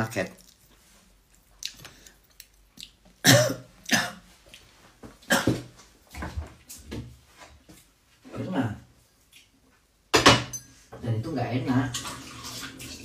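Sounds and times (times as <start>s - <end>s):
woman coughing: 3.2s - 4.2s, 5.3s - 5.6s.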